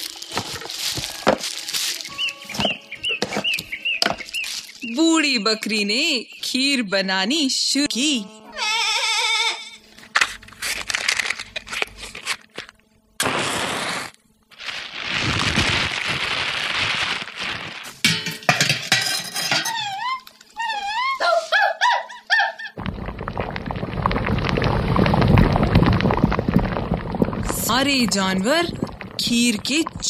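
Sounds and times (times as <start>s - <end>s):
wavering high calls: 1.0s - 5.0s, 19.6s - 22.8s
metal pots and utensils clinking: 18.0s - 20.0s.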